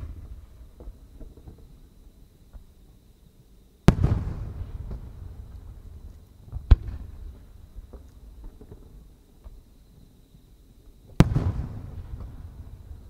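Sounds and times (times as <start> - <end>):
firework booms: 0.0 - 1.9, 3.8 - 9.6, 11.1 - 13.0.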